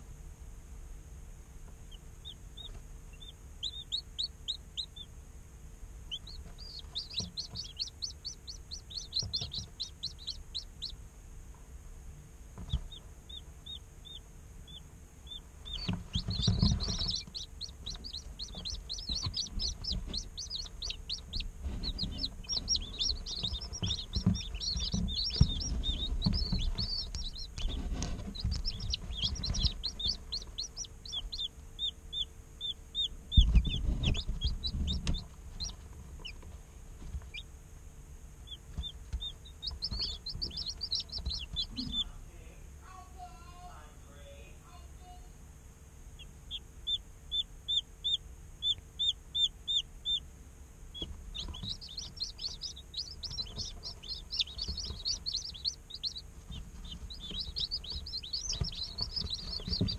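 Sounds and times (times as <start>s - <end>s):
chicks peeping: 1.6s - 5.3s, 5.9s - 11.6s, 12.5s - 42.4s, 46.1s - 59.9s
soft knocks and rustling: 56.4s - 59.9s.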